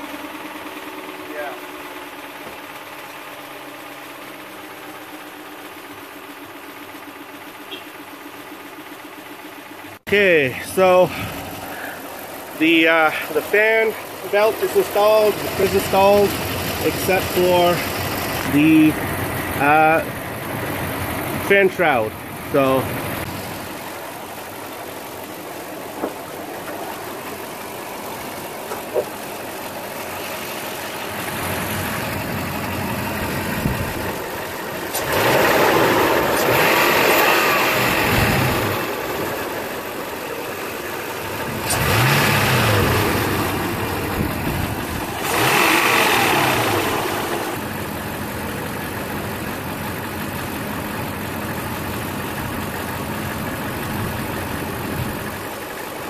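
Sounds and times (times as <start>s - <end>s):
engine idling with knock: 0.0s - 56.0s
engine revving: 12.6s - 23.3s, 30.3s - 48.3s.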